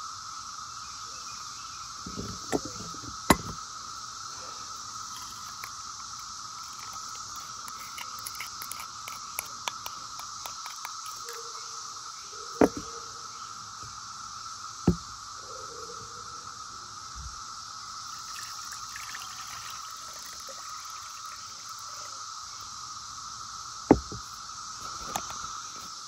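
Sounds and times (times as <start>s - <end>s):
cicadas droning: 0.0s - 26.0s
plastic spoon scraping glass bowl: 2.1s - 3.6s, 5.1s - 5.7s
sharp knocks: 2.1s - 3.6s, 12.6s - 12.9s, 23.9s - 24.2s.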